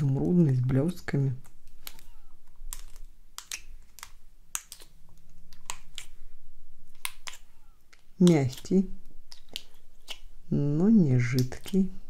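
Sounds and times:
fingernails clicking in slime: 2.7s - 5.0s.

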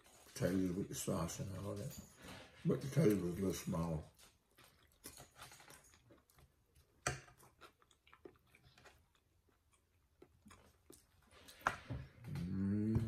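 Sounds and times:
faint chewing: 2.8s - 13.0s.

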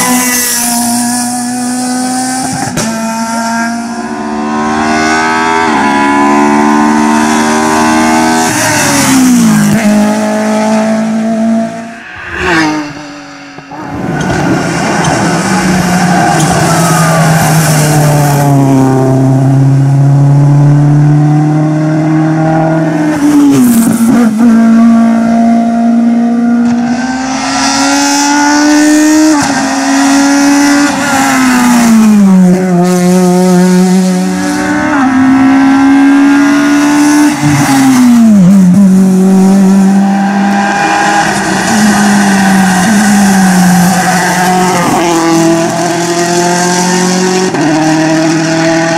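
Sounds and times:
rally cars accelerating past: 0.0s - 48.9s.

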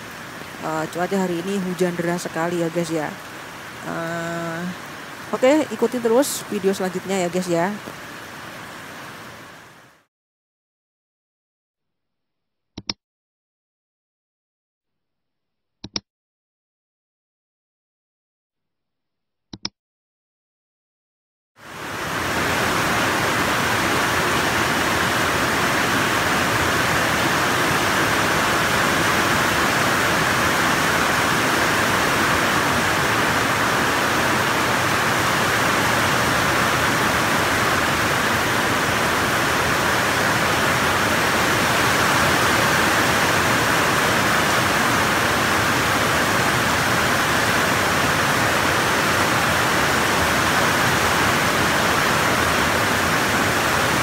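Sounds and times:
heavy rain pouring: 0.0s - 10.1s, 21.6s - 54.0s
runoff water streaming off roof: 0.0s - 10.1s, 21.6s - 54.0s.

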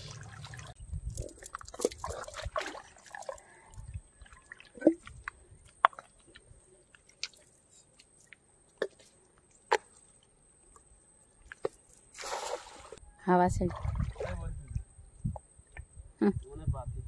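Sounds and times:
water splash: 0.0s - 0.8s, 1.6s - 3.4s, 12.2s - 13.0s, 13.6s - 14.6s.

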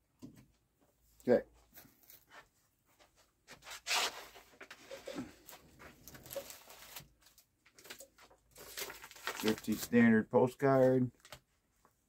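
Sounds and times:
paper and packaging rustling: 3.8s - 12.0s.

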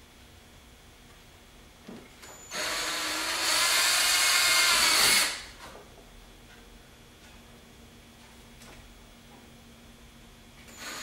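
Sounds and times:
power drill whining: 2.4s - 5.5s, 10.7s - 11.0s.

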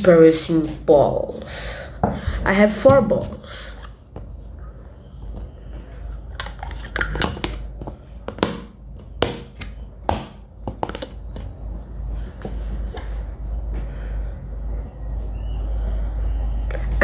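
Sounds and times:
plastic cups clicking on tabletop: 6.3s - 9.8s.

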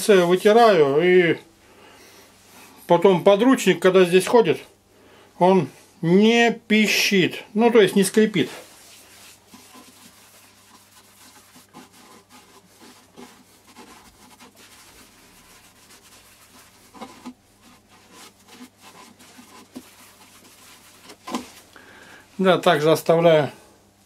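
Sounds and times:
cloth rubbing wooden bowl: 0.0s - 1.0s, 6.8s - 21.7s.

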